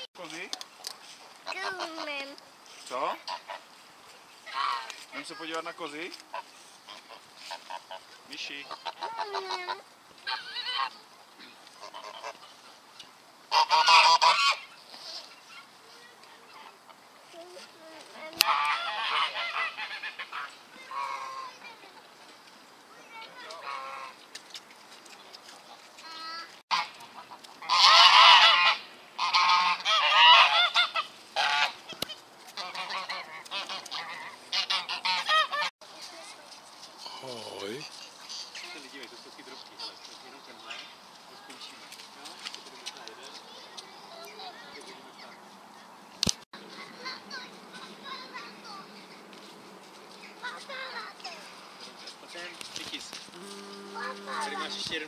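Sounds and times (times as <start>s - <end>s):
goose honking: 4.5s - 4.9s, 8.6s - 11.0s, 11.8s - 12.5s, 13.5s - 14.7s, 18.4s - 21.6s, 23.6s - 24.2s, 26.7s - 31.8s, 32.5s - 35.7s, 53.4s - 55.0s.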